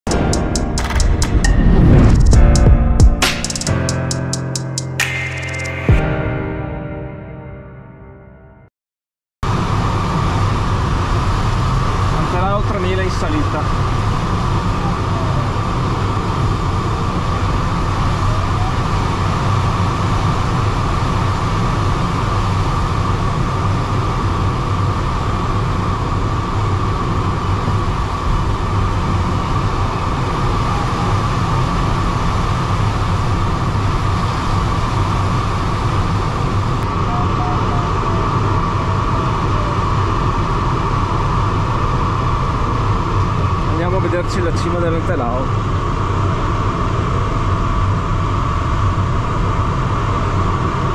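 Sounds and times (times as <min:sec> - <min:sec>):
air rushing over glider: 0:01.0 - 0:03.5.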